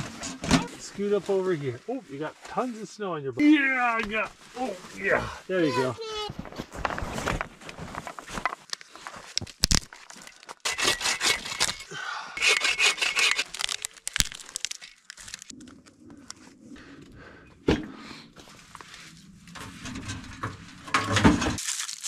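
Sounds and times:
wood cracking: 8.4 - 16.4, 20.9 - 22.0
hand saw strokes: 10.7 - 11.8, 12.4 - 13.5.

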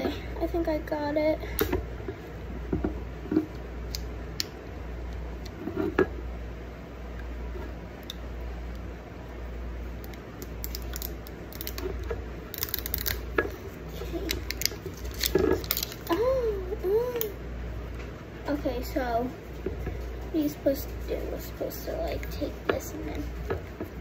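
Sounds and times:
steady low hum: 0.0 - 24.0
plastic clicks and crinkles: 10.0 - 16.3.

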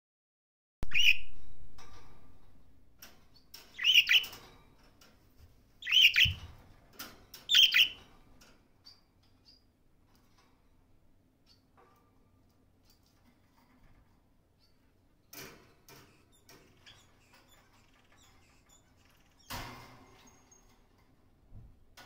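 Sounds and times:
budgerigar chirping: 0.9 - 1.3, 3.8 - 4.3, 5.8 - 6.4, 7.5 - 8.0.

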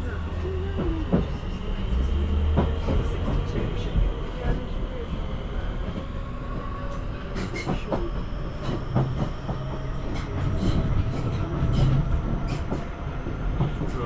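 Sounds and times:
train rumbling on track: 0.0 - 14.0.

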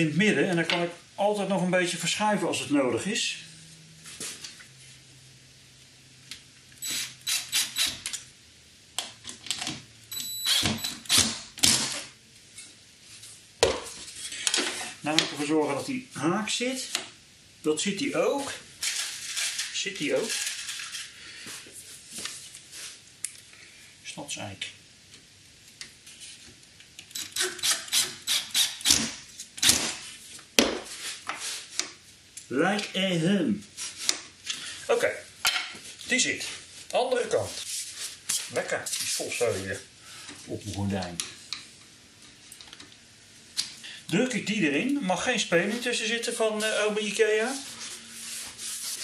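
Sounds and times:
cordless drill driving screws: 6.8 - 8.2, 10.4 - 12.0
cordless screwdriver driving screw: 6.8 - 8.2.

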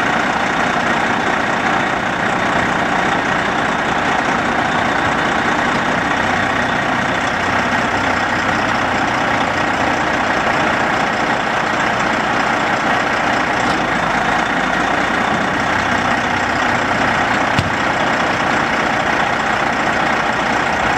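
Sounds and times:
diesel engine idling: 0.0 - 20.9
short knock: 17.6 - 17.8.

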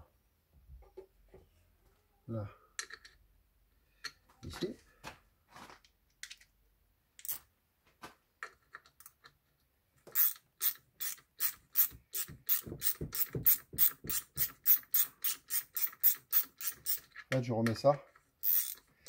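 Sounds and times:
ratchet wrench clicking: 10.1 - 17.1, 18.4 - 18.9.

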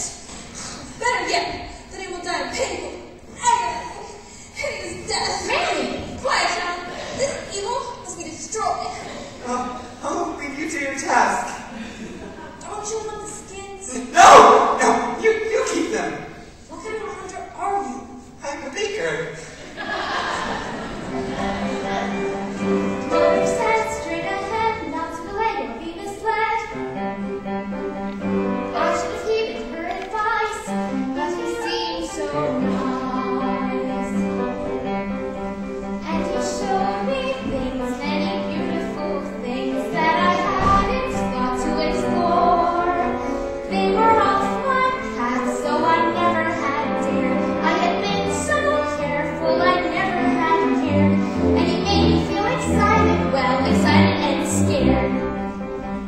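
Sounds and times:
instrumental accompaniment: 20.6 - 56.0
young woman singing: 36.1 - 51.7.

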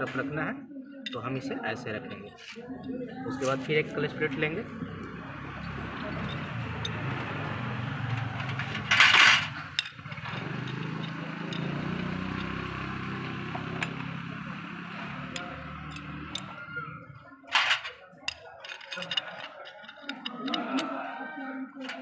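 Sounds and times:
metal plates clinking: 8.2 - 12.6, 17.6 - 20.9
scraping metal rattle: 8.2 - 12.6, 17.6 - 20.9.

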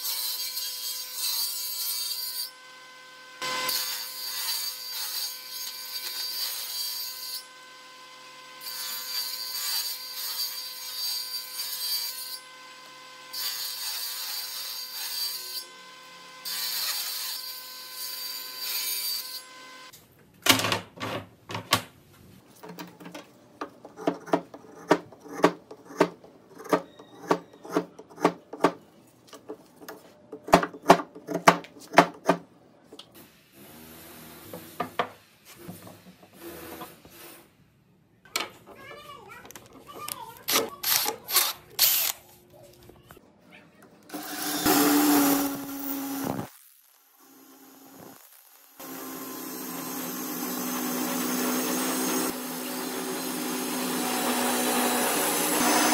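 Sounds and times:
table saw motor hum: 44.1 - 46.5, 48.8 - 55.9.

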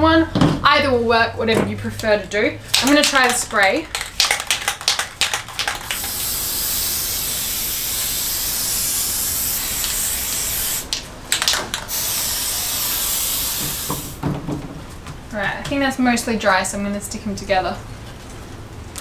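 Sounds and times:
aerosol can rattling: 2.8 - 14.2
aerosol spray hissing: 5.6 - 10.9, 11.8 - 14.2.

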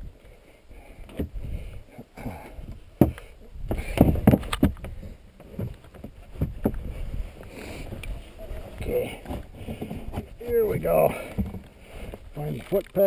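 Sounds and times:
kayak thumping on snow: 2.2 - 13.0
paddle knocking against hull: 3.0 - 7.0, 9.0 - 10.4, 11.1 - 12.2.

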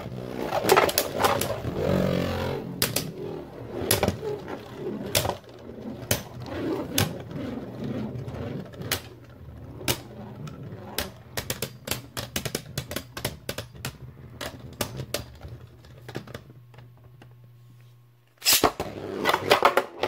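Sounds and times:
steady low hum: 0.0 - 19.5.

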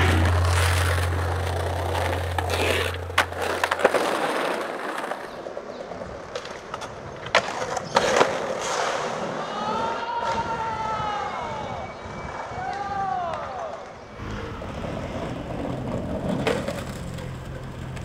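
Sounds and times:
low hum: 0.0 - 5.7, 13.9 - 18.0
skateboard clacking on ground: 0.0 - 9.3, 14.8 - 18.0
skateboard wheels rolling on pavement: 0.0 - 18.0.

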